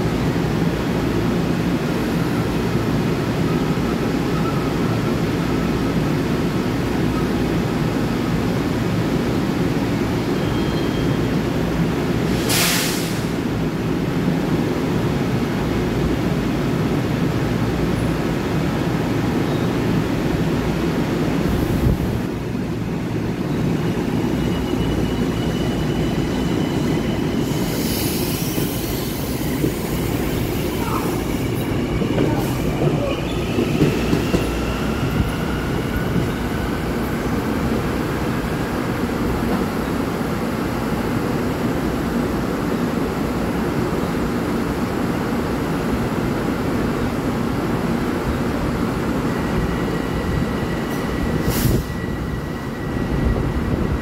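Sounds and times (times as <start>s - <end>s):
train rumbling over rails: 0.0s - 54.0s
train wheel squeal: 3.5s - 5.2s, 10.2s - 11.4s, 23.4s - 37.7s, 49.2s - 54.0s.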